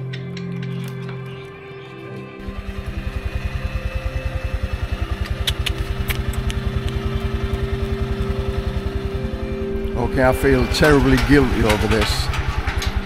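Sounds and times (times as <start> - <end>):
scooter engine idling: 2.4 - 13.0
light rattles: 10.0 - 13.0.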